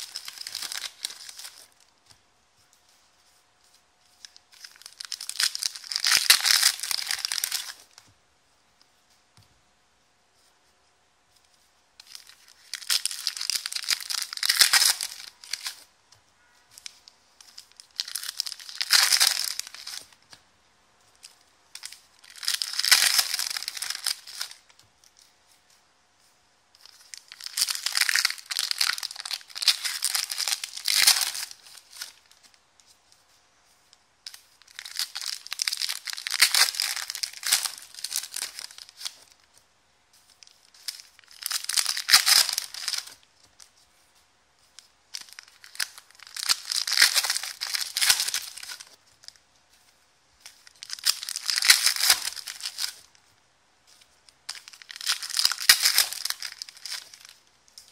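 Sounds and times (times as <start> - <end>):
card wrappers tearing and crinkling: 0.0 - 1.8, 4.2 - 8.0, 12.0 - 15.9, 16.8 - 20.2, 21.2 - 24.8, 26.8 - 32.4, 34.3 - 39.4, 40.2 - 43.2, 45.1 - 49.4, 50.4 - 53.1, 54.5 - 57.9.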